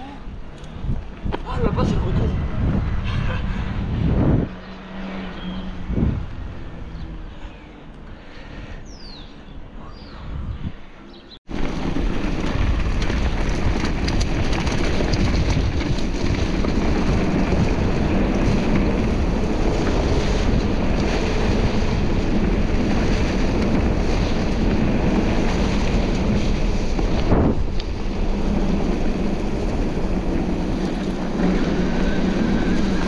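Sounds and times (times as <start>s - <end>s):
wind buffeting microphone: 0.0s - 7.8s, 8.6s - 33.0s
bike rumbling over trail: 10.9s - 33.0s.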